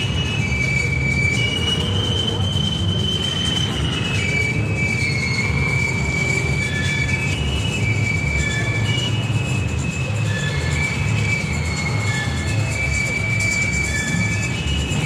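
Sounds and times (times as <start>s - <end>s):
high whistling tones: 0.0s - 15.0s
stock car engines rumbling: 0.0s - 15.0s.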